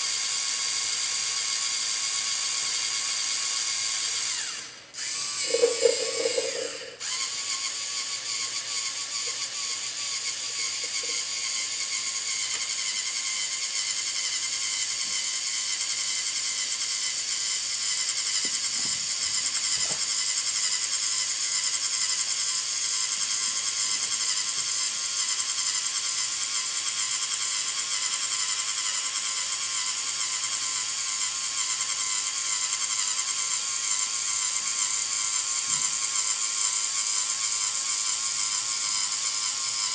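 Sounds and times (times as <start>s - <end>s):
servo motors and gears whining: 0.1s - 29.2s.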